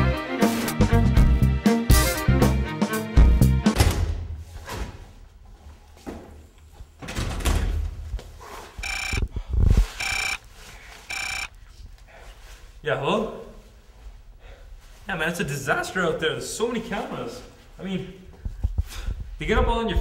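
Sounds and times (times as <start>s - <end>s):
phone ringing: 8.8s - 9.2s, 10.0s - 10.4s, 11.1s - 11.6s.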